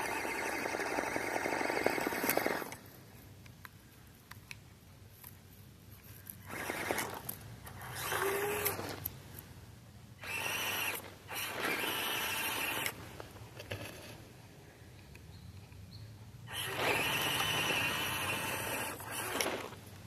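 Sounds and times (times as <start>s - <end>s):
small electric motor whirring: 0.0s - 2.8s, 6.3s - 9.1s, 10.2s - 13.0s, 16.5s - 19.9s.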